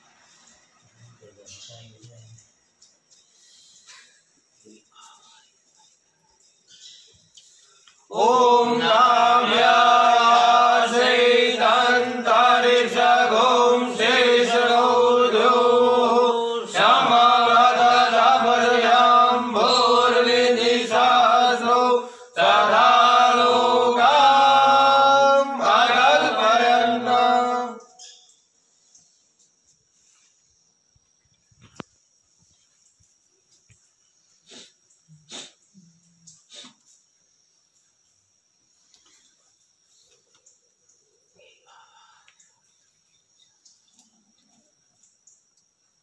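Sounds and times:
devotional chanting: 8.1s - 28.3s.

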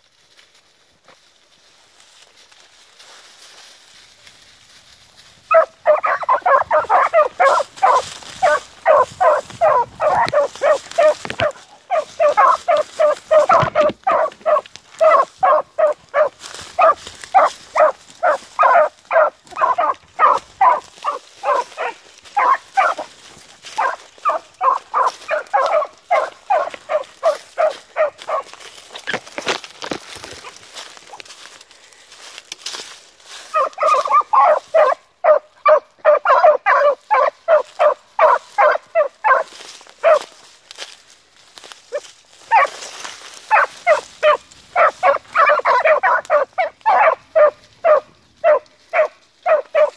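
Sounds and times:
hounds barking rapidly: 5.4s - 29.4s, 33.4s - 40.5s, 41.9s - 49.9s.

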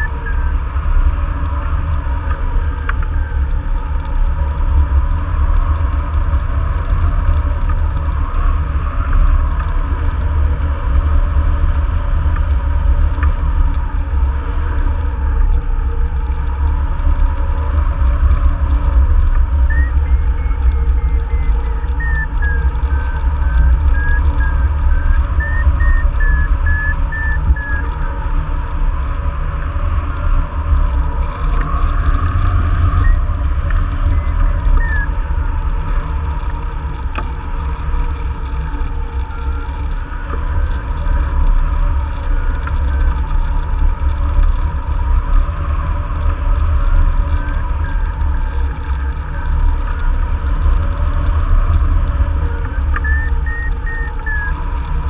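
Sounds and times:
variometer beeping: 0.0s - 0.4s, 19.7s - 27.9s, 34.1s - 35.1s, 52.7s - 54.6s
wind buffeting microphone: 0.0s - 55.0s.

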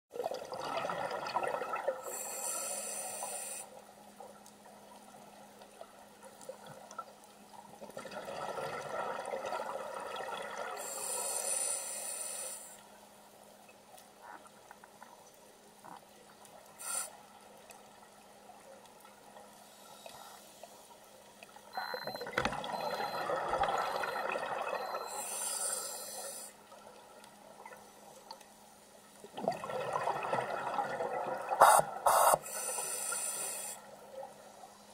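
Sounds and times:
exhaled bubbles gurgling underwater: 0.2s - 2.2s, 7.8s - 10.9s, 21.8s - 25.2s, 29.2s - 32.0s
regulator hiss: 2.1s - 3.8s, 10.8s - 12.8s, 16.8s - 17.2s, 25.1s - 26.6s, 31.6s - 33.9s.

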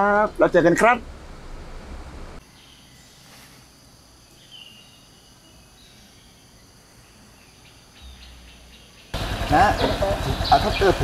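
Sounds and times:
low bus cabin hum: 0.2s - 2.4s
bird chirp: 2.4s - 11.0s
insect chorus: 2.4s - 11.0s.

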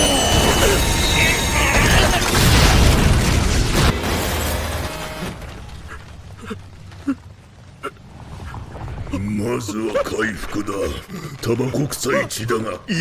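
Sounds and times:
heavy impact crash: 0.2s - 6.8s
rubble smashing rumble: 0.3s - 10.6s
falling debris knocks: 1.7s - 9.2s.

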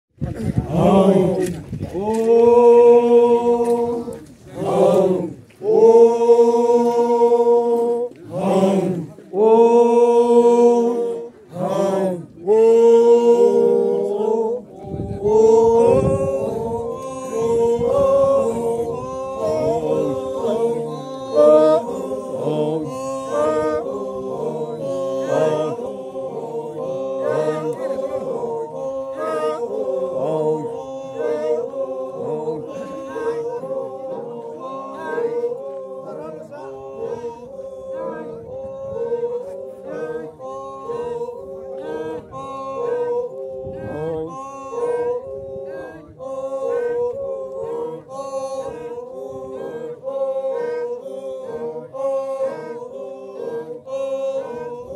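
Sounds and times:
men singing a cappella: 0.3s - 54.9s.

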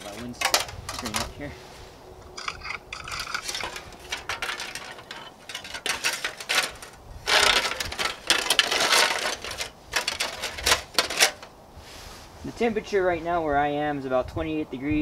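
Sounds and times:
aluminium foil crinkling: 2.4s - 11.5s.

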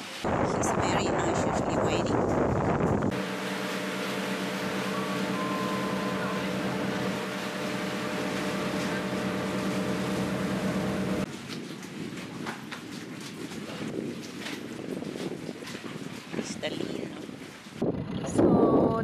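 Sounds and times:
motorboat engine humming: 1.4s - 11.3s.

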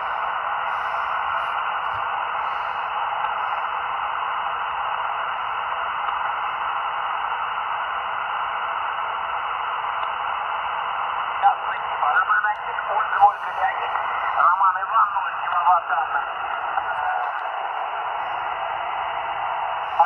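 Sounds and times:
radio static hiss: 0.0s - 20.0s.

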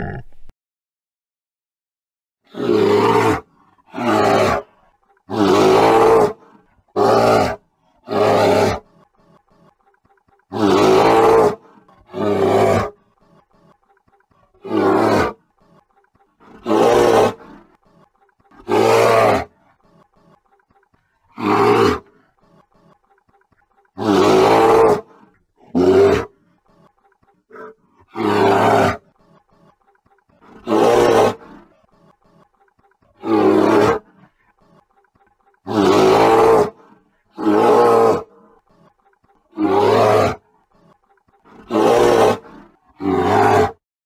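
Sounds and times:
bear roaring: 2.5s - 9.0s, 10.5s - 15.8s, 16.4s - 17.9s, 18.5s - 19.8s, 21.3s - 22.7s, 24.0s - 26.9s, 27.5s - 29.2s, 30.3s - 31.9s, 33.1s - 34.3s, 35.6s - 38.6s, 39.5s - 40.4s, 41.4s - 43.8s.

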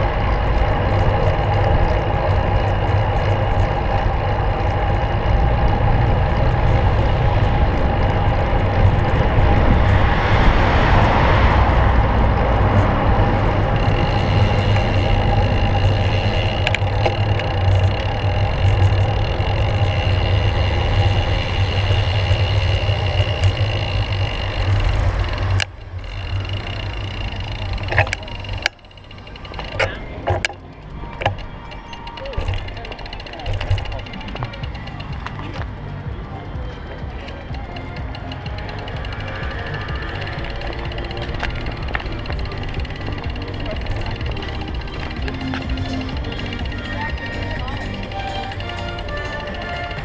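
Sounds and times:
wind rumble: 0.0s - 48.2s
road noise: 0.0s - 50.0s
sharp clicks: 12.4s - 35.8s, 36.9s - 50.0s.

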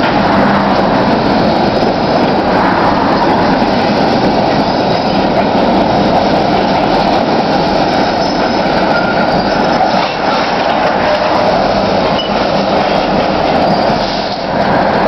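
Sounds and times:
steel wheels rumbling on rail: 0.0s - 15.0s
wheel squeals: 8.0s - 14.5s.

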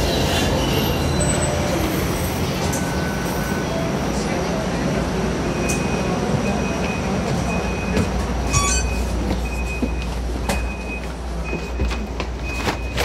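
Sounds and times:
streetcar rumble: 0.0s - 13.0s
wheel squeal: 8.5s - 9.1s.

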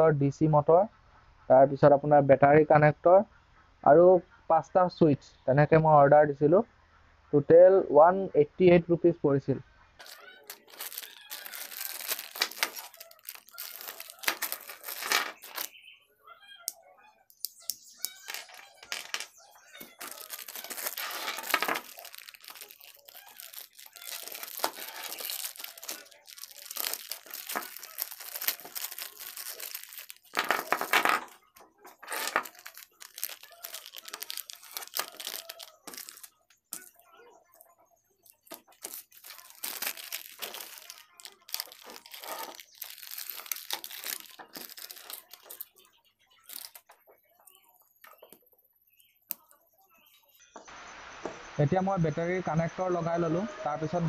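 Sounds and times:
plastic bags crinkling: 10.0s - 15.8s, 18.0s - 47.6s.

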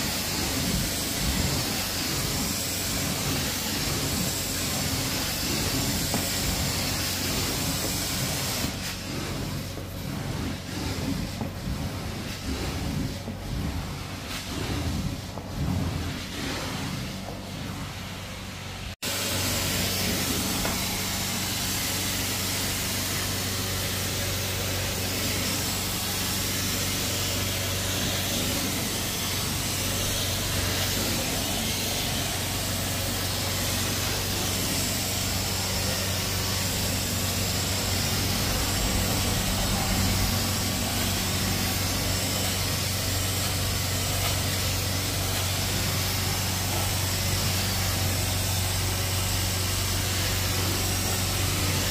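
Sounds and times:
rushing hiss of vacuum and spray: 0.0s - 51.9s
engine drone: 24.2s - 48.8s.

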